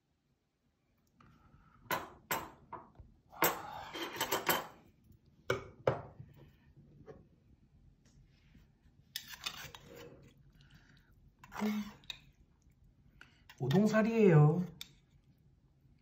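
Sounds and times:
cutlery clinking against metal bowl: 0:03.4 - 0:04.8.

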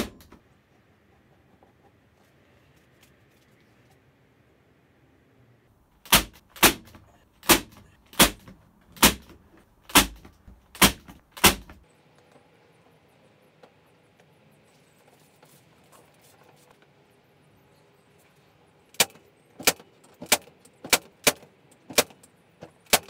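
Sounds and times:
faint handling noise: 0:00.2 - 0:04.4, 0:12.1 - 0:18.6
electric nail gun firing: 0:06.0 - 0:09.3, 0:09.9 - 0:11.8.

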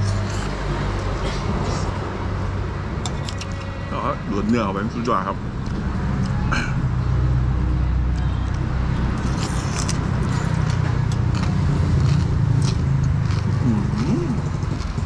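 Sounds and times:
vehicle engine rumbling: 0:00.0 - 0:15.0
person slurping noodles: 0:13.3 - 0:15.0.

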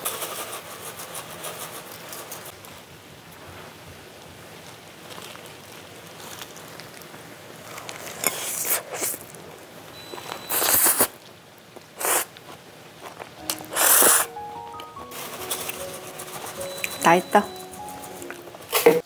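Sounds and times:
rustling or shaking bursts: 0:00.0 - 0:02.5, 0:15.0 - 0:19.0
steady low hiss: 0:01.9 - 0:19.0.

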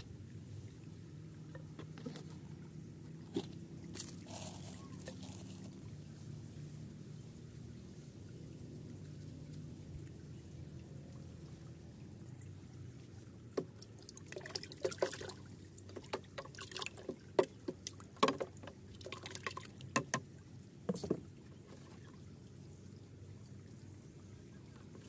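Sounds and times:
water splashing in plastic bucket: 0:14.2 - 0:20.2.

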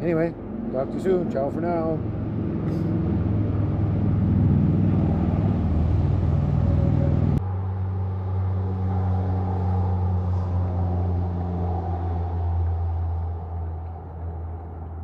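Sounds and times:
vehicle engine running: 0:00.0 - 0:11.9.

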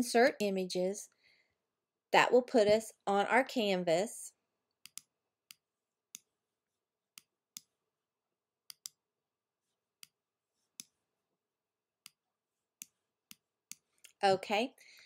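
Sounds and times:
computer mouse button clicking: 0:08.7 - 0:09.0.

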